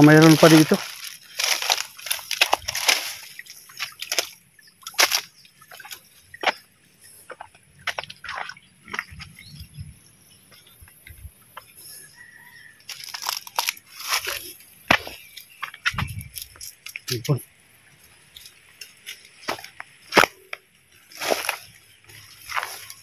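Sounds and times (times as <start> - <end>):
footsteps through dry grass: 0.0 - 6.6, 12.4 - 16.9, 18.0 - 20.4, 21.0 - 23.0
water sloshing: 0.2 - 9.4.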